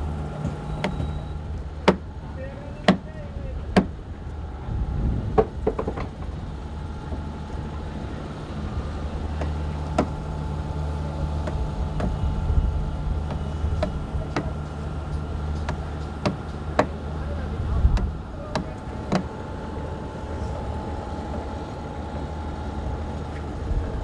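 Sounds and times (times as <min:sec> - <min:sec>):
boat engine humming: 0:00.0 - 0:24.0
sharp clicks and knocks: 0:05.4 - 0:06.4, 0:11.4 - 0:12.2, 0:13.2 - 0:17.0, 0:17.9 - 0:19.3.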